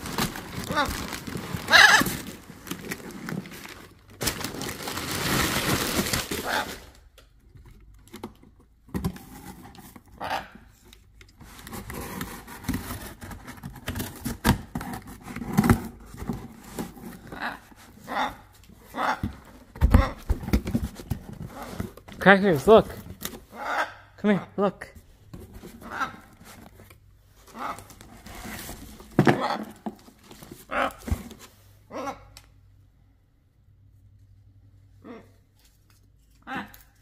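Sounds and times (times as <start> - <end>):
paper and cardboard rustling: 0.0 - 7.0, 11.4 - 18.1, 19.2 - 23.5, 25.1 - 31.7
macaw calls: 1.7 - 2.2.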